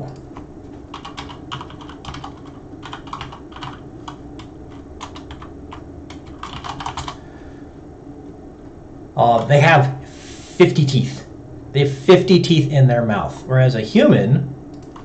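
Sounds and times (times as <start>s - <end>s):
typing on computer keyboard: 0.1s - 7.2s, 14.7s - 15.0s.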